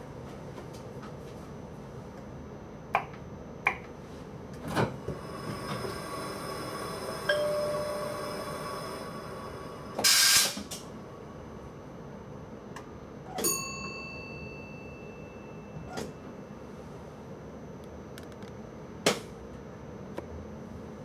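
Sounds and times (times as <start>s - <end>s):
steady ringing tone: 5.3s - 10.0s, 13.4s - 17.7s
short air hiss: 10.0s - 10.6s.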